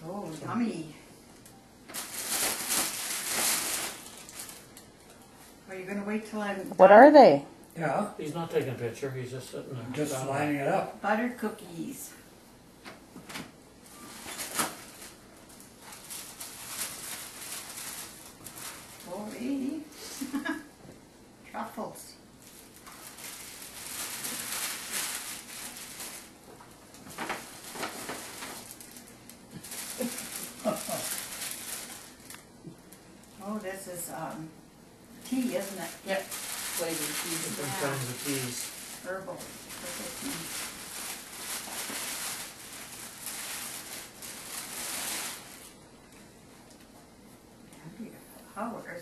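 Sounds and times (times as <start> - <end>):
wrapping paper rustling: 0.3 - 5.5, 13.2 - 20.5, 22.4 - 33.4, 35.2 - 46.9.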